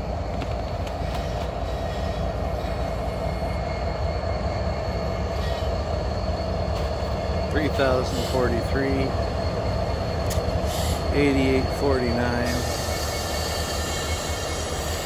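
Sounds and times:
faint wheel whine: 0.0s - 15.0s
train rumbling on rails: 0.0s - 15.0s.

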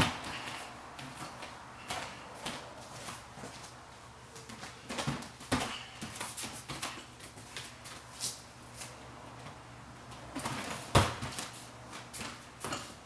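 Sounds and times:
hands and feet thumping on mat: 0.0s - 3.7s, 10.3s - 12.9s.

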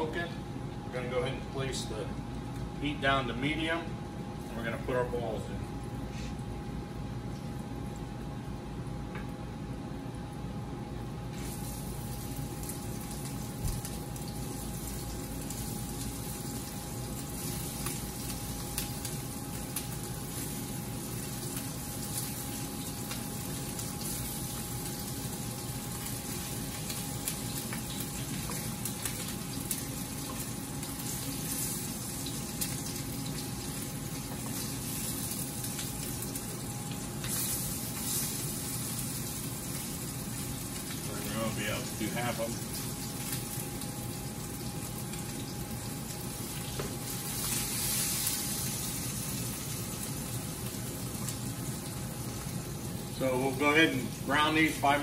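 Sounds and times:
faint steady hum: 0.0s - 55.0s
meatballs sizzling in oil: 11.2s - 55.0s.

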